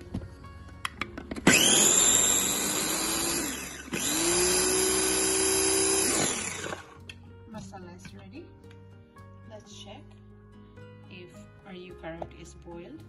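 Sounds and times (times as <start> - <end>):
electric food chopper whirring: 1.3 - 7.0.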